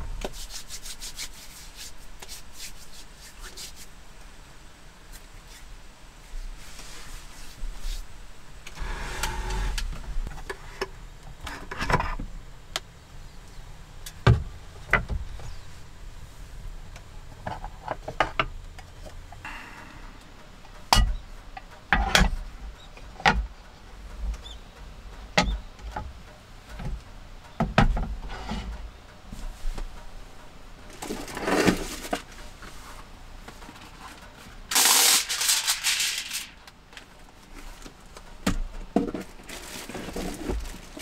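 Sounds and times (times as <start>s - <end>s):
paper rustling: 34.7s - 36.6s.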